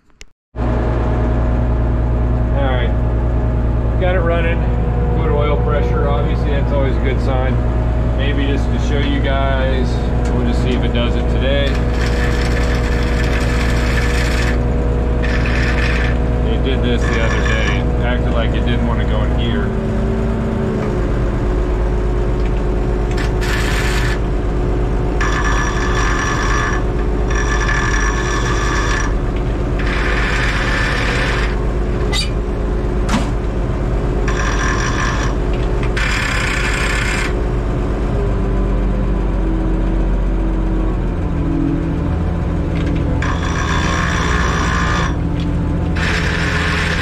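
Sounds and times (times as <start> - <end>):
tractor engine running: 0.0 - 47.0
gears grinding: 8.2 - 32.5, 34.2 - 37.4, 41.8 - 47.0.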